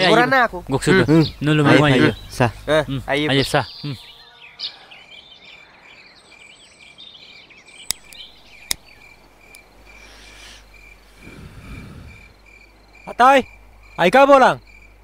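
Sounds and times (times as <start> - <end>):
crickets trilling: 0.1 - 4.2, 7.6 - 15.0
lighter chirping calls: 7.6 - 15.0
sharp clicks: 7.8 - 9.7.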